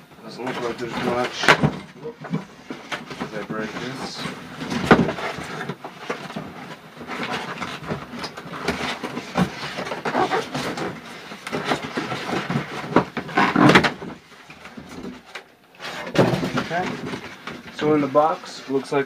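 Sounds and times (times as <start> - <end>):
foam scraping against cardboard: 2.4 - 14.3, 15.8 - 19.0.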